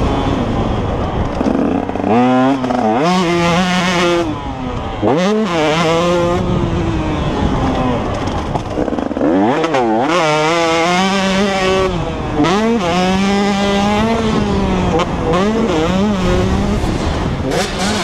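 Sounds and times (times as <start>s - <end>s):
two-stroke motorcycle engine revving: 0.0s - 18.0s.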